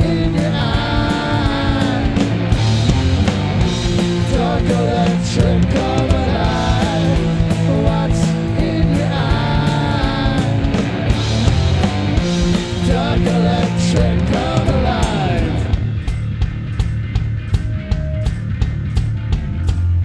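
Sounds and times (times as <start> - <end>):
person singing: 0.0 - 2.4, 4.0 - 10.8, 12.6 - 15.8
bass guitar: 0.0 - 20.0
drums with cymbals: 0.0 - 20.0
electric guitars: 0.0 - 20.0.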